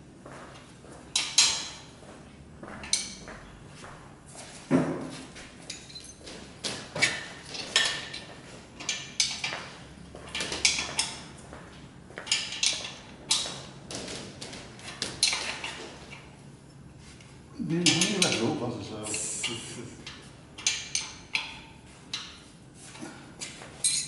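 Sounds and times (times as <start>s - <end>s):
wrench clinking on metal: 5.7s - 6.2s.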